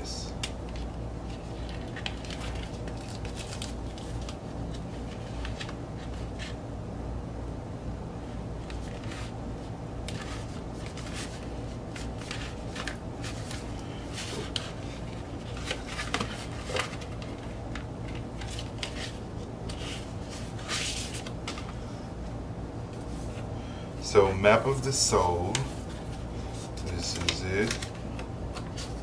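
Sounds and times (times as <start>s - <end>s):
paper packaging rustling: 0.5s - 6.6s, 10.1s - 21.8s, 25.0s - 29.0s.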